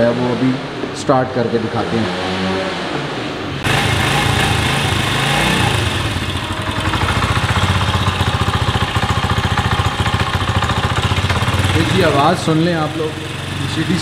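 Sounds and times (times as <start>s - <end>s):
motorcycle engine starting and idling: 3.6s - 14.0s.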